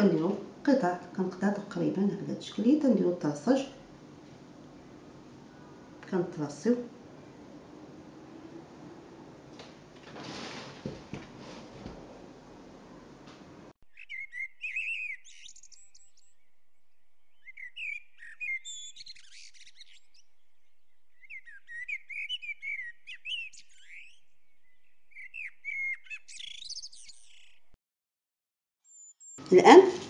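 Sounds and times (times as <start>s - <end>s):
small songbirds chirping: 13.9s - 27.8s.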